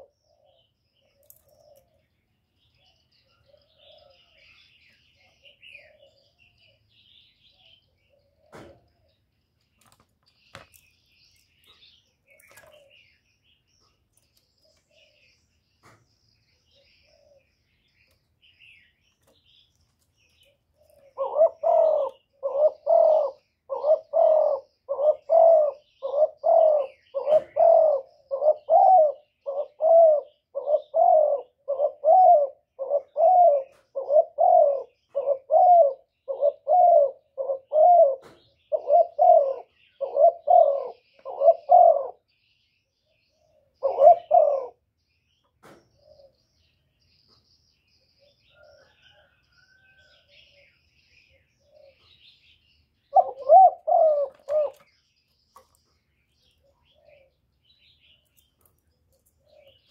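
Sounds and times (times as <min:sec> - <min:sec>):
dove cooing: 0:00.0 - 0:02.0, 0:02.8 - 0:09.1, 0:12.3 - 0:13.2, 0:16.7 - 0:17.7, 0:20.4 - 0:42.3, 0:43.3 - 0:44.9, 0:46.0 - 0:46.4, 0:48.2 - 0:52.4, 0:53.0 - 0:54.9, 0:56.6 - 0:57.4, 0:59.4 - 0:59.9.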